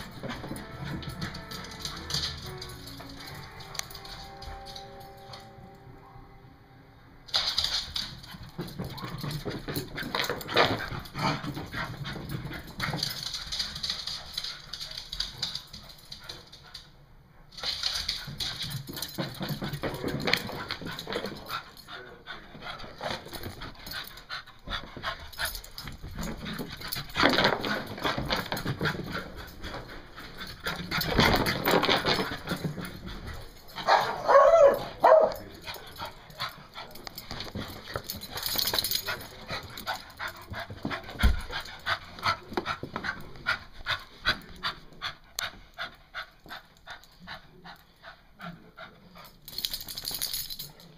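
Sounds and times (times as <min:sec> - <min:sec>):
dog panting: 0:20.4 - 0:34.0, 0:35.5 - 0:49.5.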